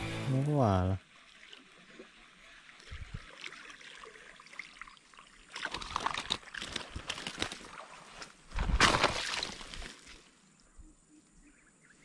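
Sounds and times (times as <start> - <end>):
water sloshing and trickling: 1.0 - 10.7
dry leaves and twigs rustling: 5.6 - 10.3.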